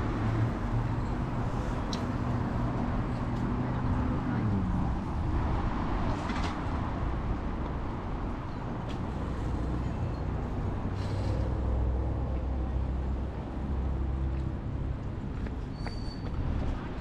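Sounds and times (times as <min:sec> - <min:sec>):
road noise: 0:00.0 - 0:17.0.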